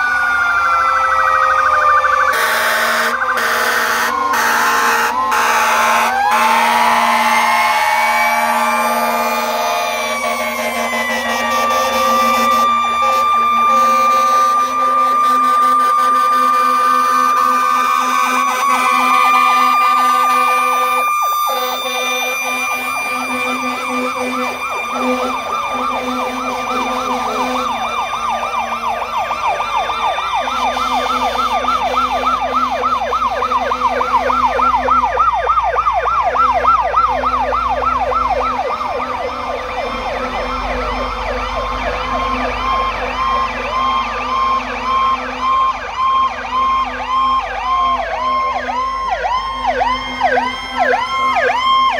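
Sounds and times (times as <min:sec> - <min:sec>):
fire truck sirens: 0:00.0 - 0:51.9.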